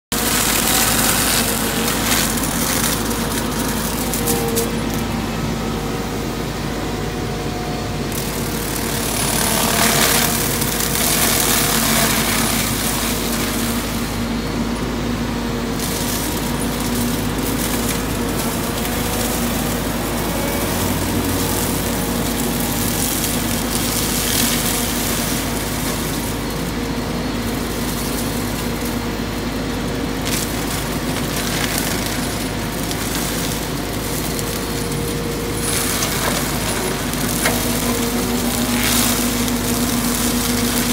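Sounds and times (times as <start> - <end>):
excavator engine and rotor hum: 0.0 - 40.9
mulcher head chewing brush: 0.1 - 5.7.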